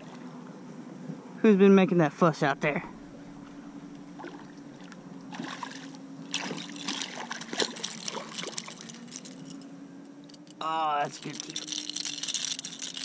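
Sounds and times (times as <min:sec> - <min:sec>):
steady low hum: 0:00.0 - 0:13.0
fish splashing in water: 0:04.0 - 0:09.4.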